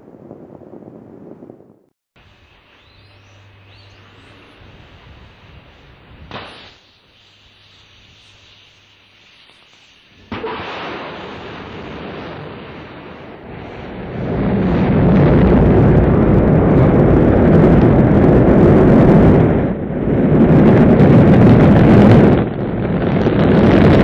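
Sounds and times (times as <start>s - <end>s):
rocket engines roaring: 10.2s - 24.0s.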